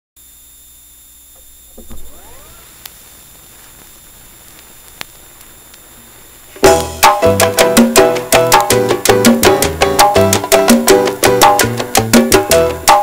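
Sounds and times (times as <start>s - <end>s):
vinyl record hiss: 0.2s - 13.0s
vinyl crackle clicks: 1.3s - 7.0s.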